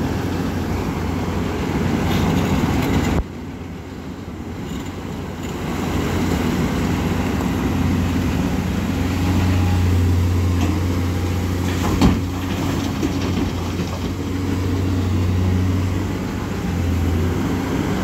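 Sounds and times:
diesel engine humming: 0:00.0 - 0:18.0
rocks dropped into steel truck: 0:11.6 - 0:14.3.

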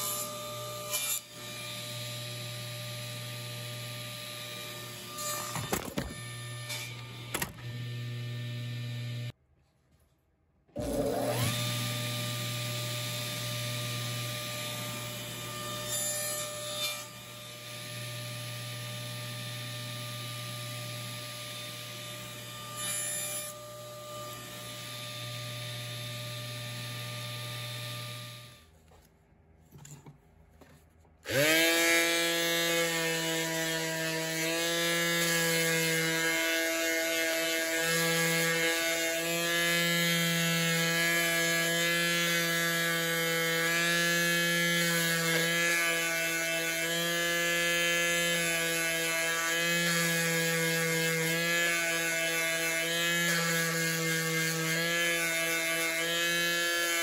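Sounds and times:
table saw cutting wood: 0:00.0 - 0:09.4, 0:10.8 - 0:28.7, 0:31.2 - 0:57.0
detail sander whining: 0:01.9 - 0:09.3.

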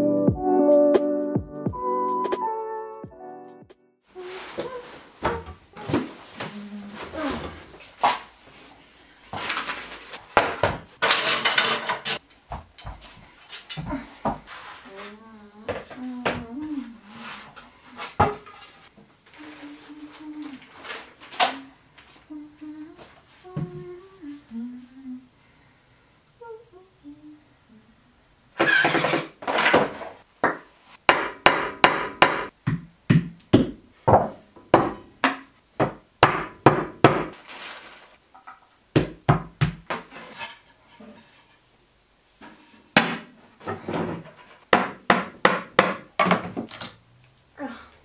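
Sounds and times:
woman humming: 0:04.1 - 0:07.8, 0:13.8 - 0:18.0, 0:19.3 - 0:25.3, 0:26.4 - 0:28.2, 0:47.6 - 0:48.0
wooden boards knocking: 0:44.0 - 0:46.7.

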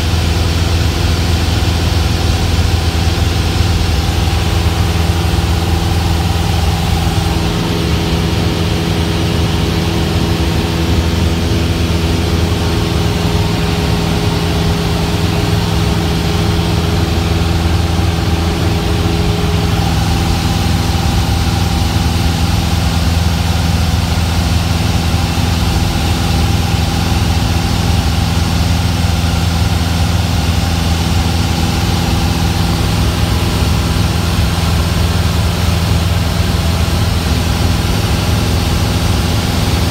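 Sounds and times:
propeller plane engine drone: 0:00.0 - 0:39.9.

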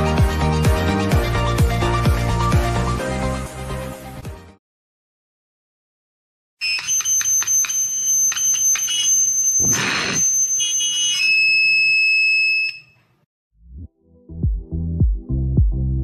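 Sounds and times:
high-pitched feedback squeal: 0:06.6 - 0:13.0.

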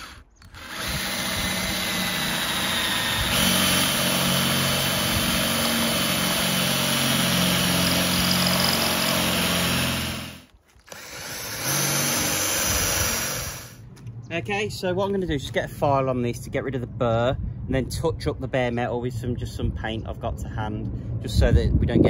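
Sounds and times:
cordless drill boring through metal: 0:00.0 - 0:13.8.

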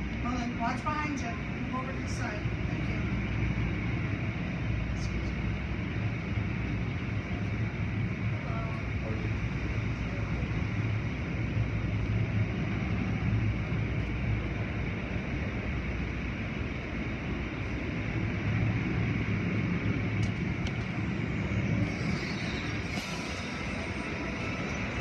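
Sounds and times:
low machinery hum: 0:00.0 - 0:25.0.

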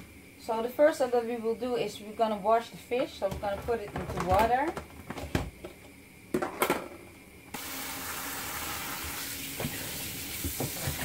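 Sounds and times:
tap water running into basin: 0:07.6 - 0:11.0.

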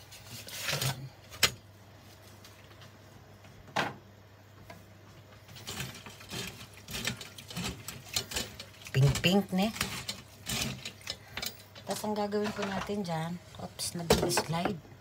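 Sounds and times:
handling shrimp in metal strainer: 0:05.5 - 0:14.6.

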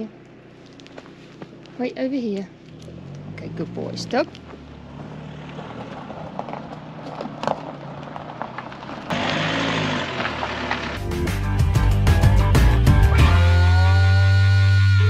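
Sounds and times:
low background rumble: 0:00.0 - 0:09.1
footsteps: 0:00.5 - 0:01.8
guitar music: 0:10.8 - 0:15.0.

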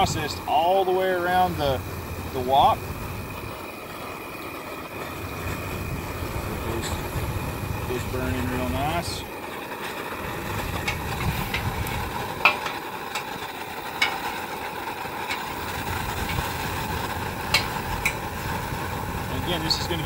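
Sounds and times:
gas burner flame rushing: 0:00.0 - 0:20.0
oil crackling and popping: 0:00.0 - 0:20.0.

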